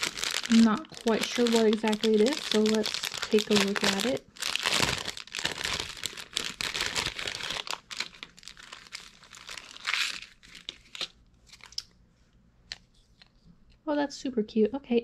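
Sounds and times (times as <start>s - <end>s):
plastic bags crinkling: 0.0s - 11.8s.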